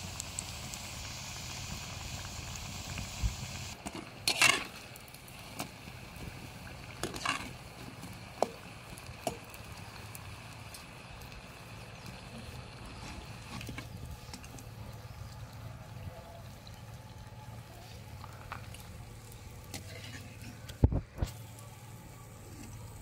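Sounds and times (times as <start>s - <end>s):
oil sizzling: 0.0s - 23.0s
metal spoon scraping and clinking pan: 4.3s - 4.7s.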